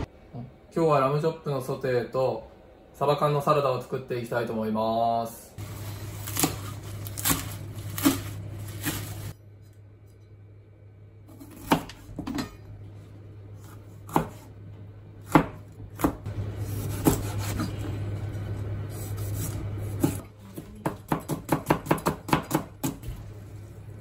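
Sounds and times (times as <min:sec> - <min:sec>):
low steady hum: 0:00.0 - 0:24.0
knife chopping on cutting board: 0:13.6 - 0:14.5, 0:15.2 - 0:17.8, 0:20.8 - 0:23.0.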